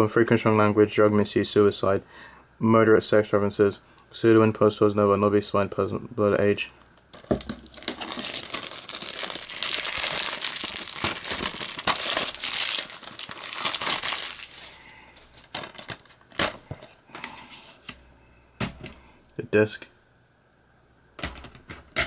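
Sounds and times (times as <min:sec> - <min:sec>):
plastic wrap crackling: 0:07.1 - 0:16.6.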